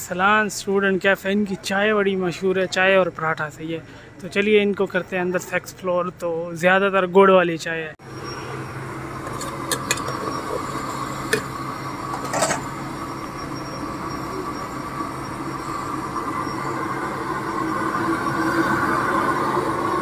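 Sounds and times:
gas burner rushing: 0:08.0 - 0:20.0
low hum: 0:08.0 - 0:20.0.

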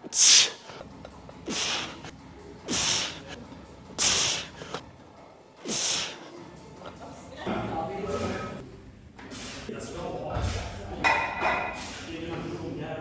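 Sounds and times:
sharp forceful breaths: 0:00.1 - 0:02.1, 0:02.7 - 0:03.4, 0:04.0 - 0:04.8, 0:05.6 - 0:06.3, 0:09.3 - 0:09.7, 0:11.6 - 0:12.2.

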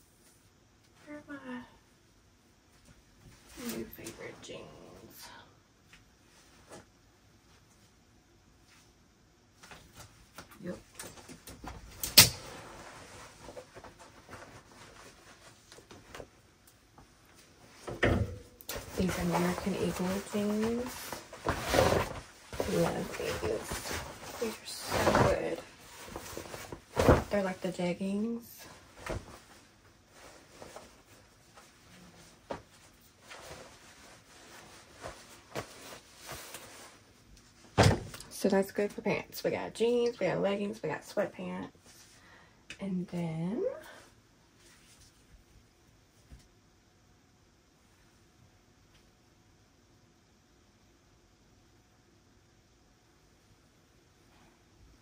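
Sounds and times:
clothing rustling: 0:08.6 - 0:37.9, 0:44.5 - 0:46.4.

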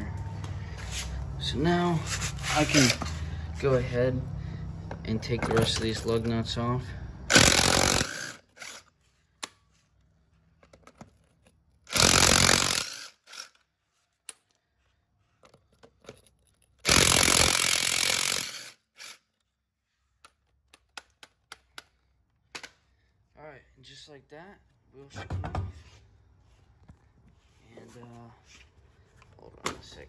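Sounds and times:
impact wrench spinning lug nuts: 0:02.5 - 0:03.2, 0:07.3 - 0:09.0, 0:11.8 - 0:13.7, 0:16.8 - 0:19.3.

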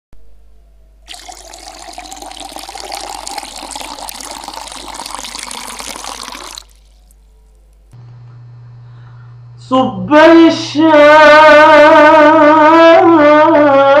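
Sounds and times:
tea pouring into a glass: 0:01.1 - 0:07.2.

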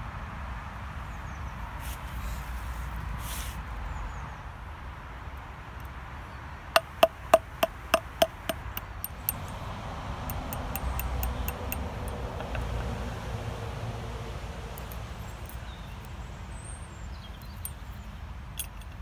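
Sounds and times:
hammer ringing on metal: 0:06.8 - 0:09.4, 0:10.3 - 0:11.8
light hammer taps: 0:06.8 - 0:09.5, 0:10.3 - 0:12.9.

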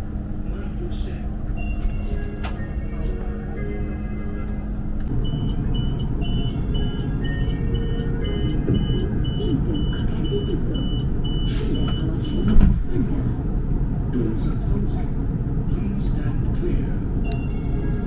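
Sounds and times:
train rumble: 0:00.0 - 0:18.0
door warning beeps: 0:01.5 - 0:03.1, 0:05.2 - 0:12.6, 0:17.2 - 0:17.6.

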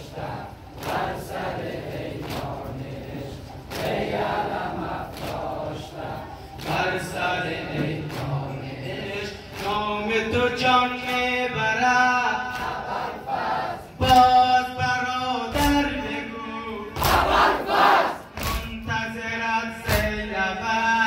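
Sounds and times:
men chanting: 0:00.0 - 0:21.0
man singing a lament: 0:06.7 - 0:12.8, 0:14.0 - 0:17.0, 0:18.4 - 0:21.0.

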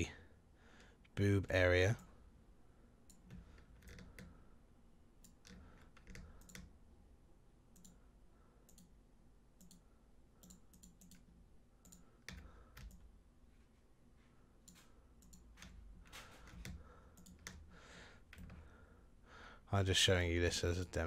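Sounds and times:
computer mouse clicks: 0:03.1 - 0:04.4, 0:05.2 - 0:06.8, 0:07.7 - 0:08.0, 0:08.7 - 0:09.0, 0:09.6 - 0:13.1, 0:14.6 - 0:17.6.

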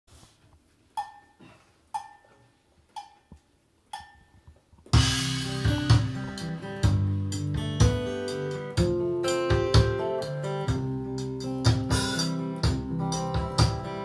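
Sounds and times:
count-in clicks with ring: 0:01.0 - 0:02.4, 0:03.0 - 0:04.6
electronic drums: 0:04.9 - 0:14.0
strummed acoustic guitars: 0:05.0 - 0:14.0
ukulele bass: 0:05.0 - 0:14.0.

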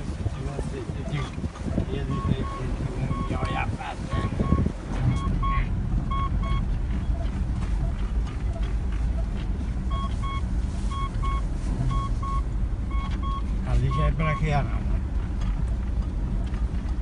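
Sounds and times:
vehicle engine and tyres rumbling: 0:00.0 - 0:17.0
short beeps: 0:02.0 - 0:06.6, 0:09.9 - 0:14.6.

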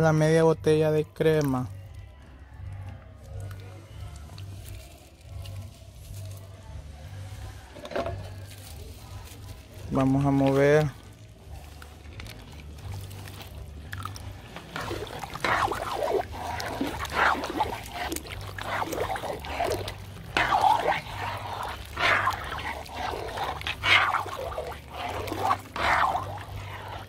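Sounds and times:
ladle stirring thick soup: 0:05.5 - 0:27.0.

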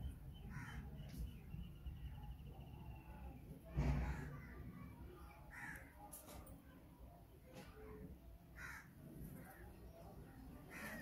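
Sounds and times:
crow cawing: 0:00.5 - 0:00.8, 0:05.5 - 0:05.9, 0:08.6 - 0:09.0.

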